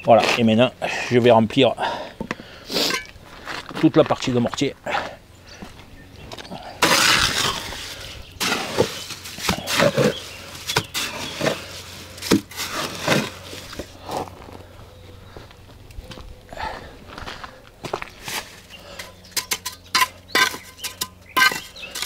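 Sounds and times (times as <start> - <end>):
trowel scraping mortar: 2.7 - 3.2, 6.8 - 14.0, 18.2 - 22.0.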